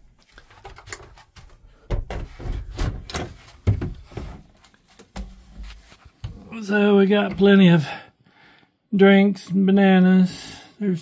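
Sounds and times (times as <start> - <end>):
door knocks and bumps: 1.9 - 4.3.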